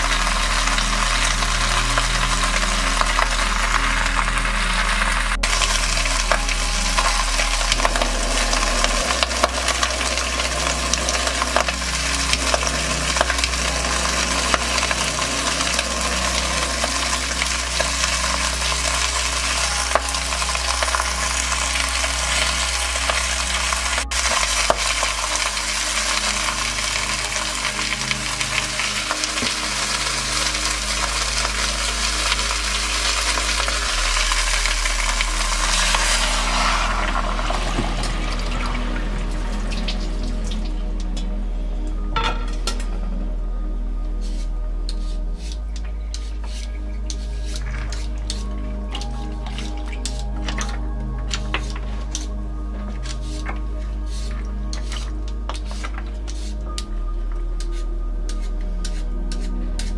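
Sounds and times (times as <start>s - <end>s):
meat sizzling in hot oil: 0.0s - 38.1s
steady low hum: 0.0s - 59.9s.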